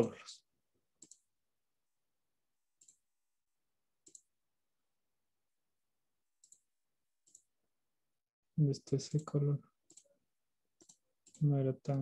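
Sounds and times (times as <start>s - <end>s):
computer mouse clicks: 1.0s - 1.3s, 2.8s - 3.0s, 4.0s - 4.3s, 6.4s - 7.5s, 9.1s - 10.2s, 10.8s - 11.5s.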